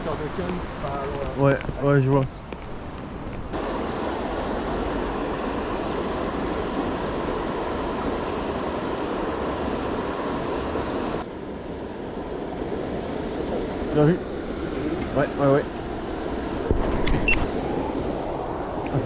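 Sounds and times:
water rushing over weir: 0:03.5 - 0:11.2.

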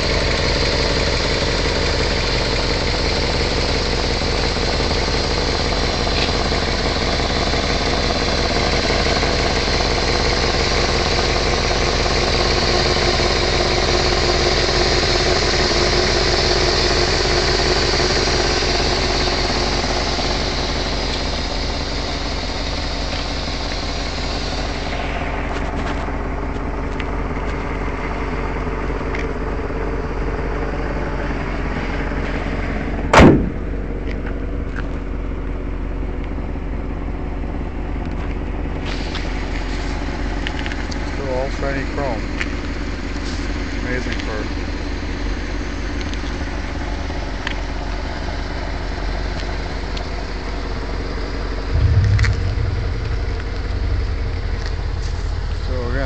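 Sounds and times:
hiss from engine bay: 0:00.0 - 0:26.5, 0:38.7 - 0:44.4
car engine idling: 0:00.0 - 0:56.0
car hood slamming shut: 0:33.1 - 0:33.7.

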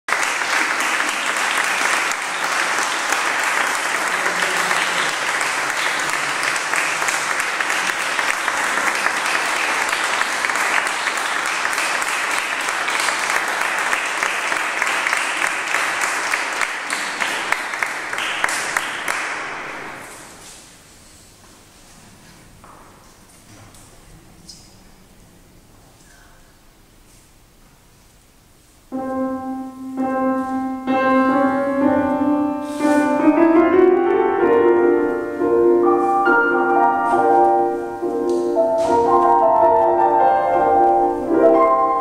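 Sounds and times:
audience applauding: 0:00.1 - 0:20.4.

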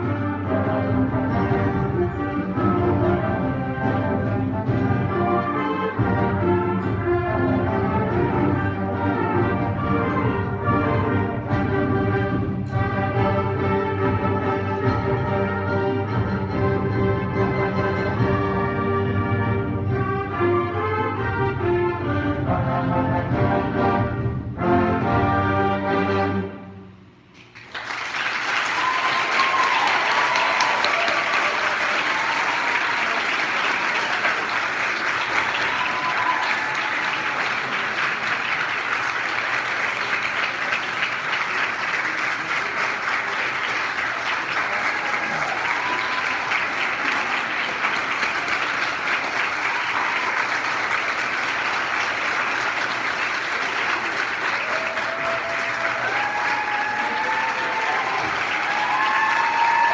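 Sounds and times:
band playing: 0:00.0 - 0:27.2
audience applauding: 0:27.4 - 0:59.9.

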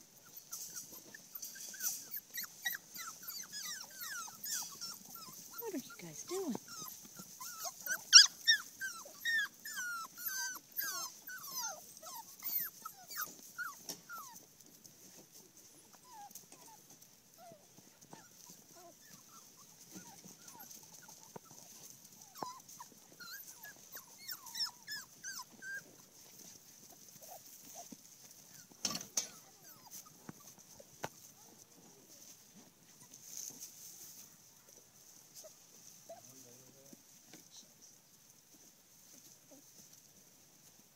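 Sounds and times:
puppies whining and yipping: 0:00.0 - 0:14.6, 0:15.7 - 0:31.6.

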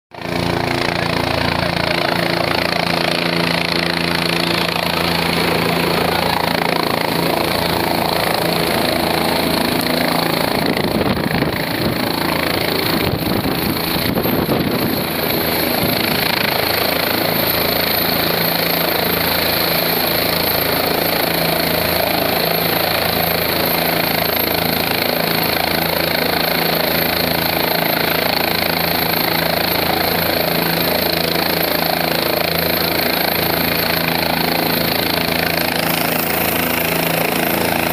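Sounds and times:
helicopter engine and rotor: 0:00.1 - 0:37.9.

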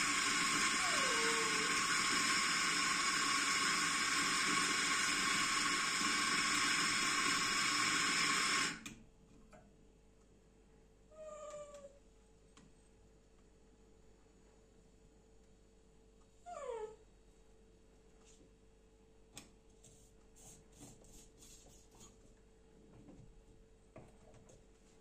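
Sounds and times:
espresso grinder running: 0:00.0 - 0:08.8.

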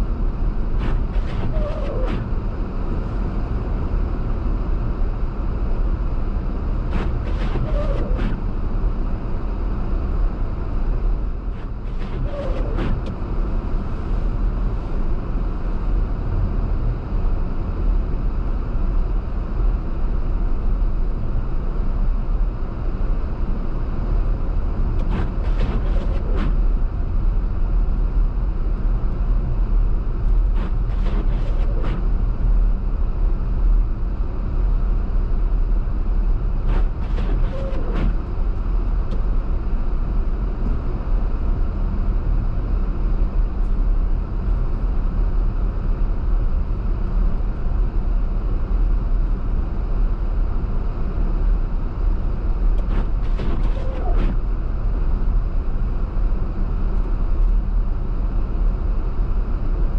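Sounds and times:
car road and engine rumble: 0:00.0 - 0:59.9.

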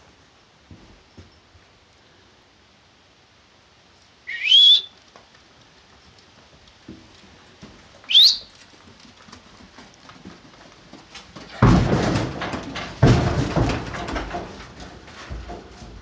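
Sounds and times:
loud rising whistles: 0:04.3 - 0:04.9, 0:08.1 - 0:08.5.

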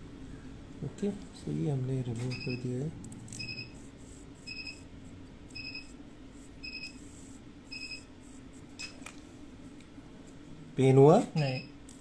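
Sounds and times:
faint steady hum: 0:00.0 - 0:12.0
short electronic beeps: 0:02.3 - 0:02.7, 0:03.4 - 0:03.7, 0:04.4 - 0:04.8, 0:05.5 - 0:06.0, 0:06.6 - 0:07.0, 0:07.7 - 0:08.1.

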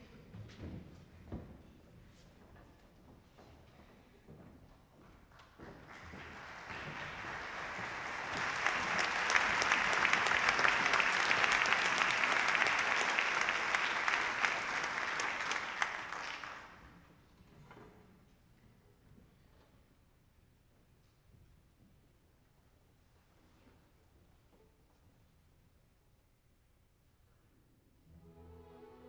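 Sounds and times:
audience applauding: 0:05.7 - 0:16.9.

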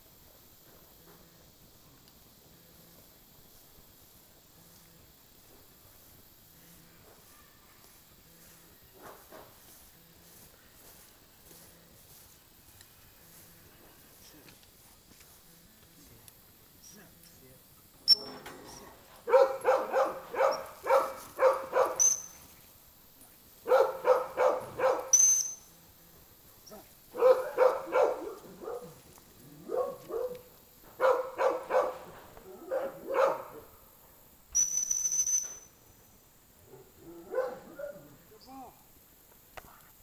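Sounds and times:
dog barking: 0:19.3 - 0:22.2, 0:23.6 - 0:25.2, 0:27.1 - 0:29.0, 0:29.6 - 0:33.7, 0:36.7 - 0:38.2
dog-training whistle blasts: 0:21.9 - 0:22.4, 0:34.6 - 0:35.7.

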